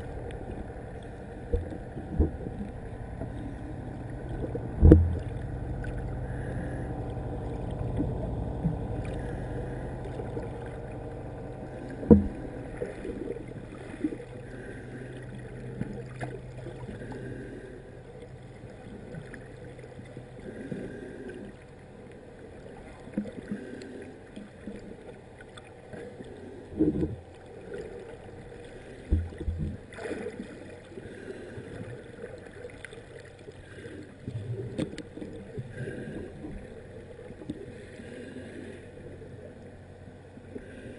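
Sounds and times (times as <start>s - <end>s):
low hum: 0.0s - 40.9s
underwater rush of water: 0.0s - 40.9s
dull underwater knocks: 1.5s - 3.4s, 4.2s - 6.2s, 11.7s - 13.3s, 29.1s - 29.8s.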